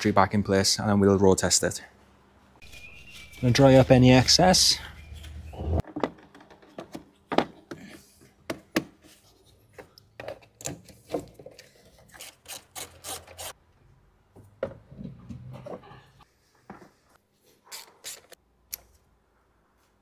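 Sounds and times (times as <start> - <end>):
handling clicks and knocks: 5.2 - 9.0.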